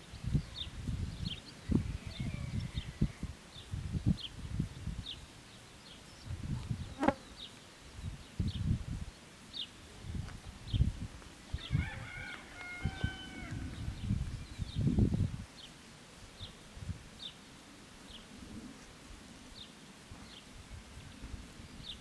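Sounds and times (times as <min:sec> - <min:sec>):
wind rumble on microphone: 0:00.0 - 0:05.4, 0:06.1 - 0:07.2, 0:07.9 - 0:09.2, 0:09.8 - 0:15.5, 0:16.4 - 0:17.2, 0:18.1 - 0:22.0
rooster crowing: 0:11.6 - 0:13.8.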